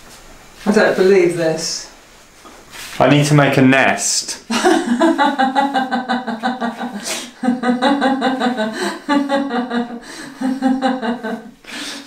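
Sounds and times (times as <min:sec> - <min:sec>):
man laughing: 0:04.4 - 0:11.6
sharp breath in: 0:11.6 - 0:12.0.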